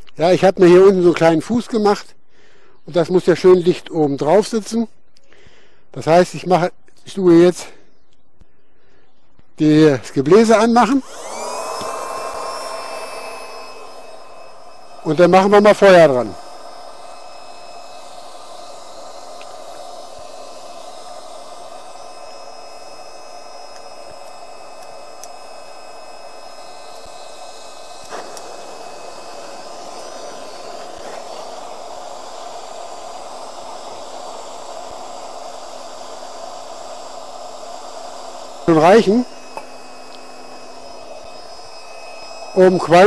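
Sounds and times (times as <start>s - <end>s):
electric blower whirring: 10.4s - 43.0s
gas torch hissing: 11.0s - 43.0s.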